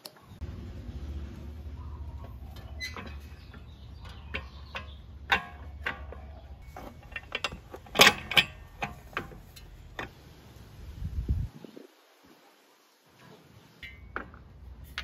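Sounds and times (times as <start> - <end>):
metal tools and bolts clinking: 2.2 - 10.2.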